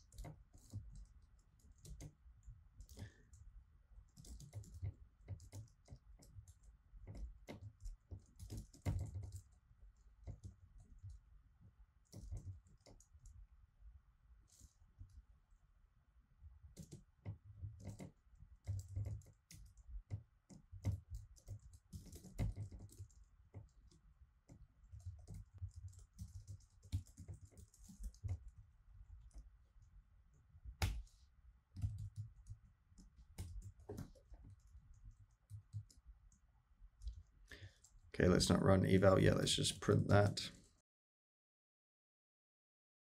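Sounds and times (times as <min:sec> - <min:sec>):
typing on computer keyboard: 0:00.0 - 0:03.4, 0:04.1 - 0:09.6, 0:10.2 - 0:11.2, 0:12.0 - 0:13.4, 0:16.7 - 0:28.6, 0:31.7 - 0:36.0.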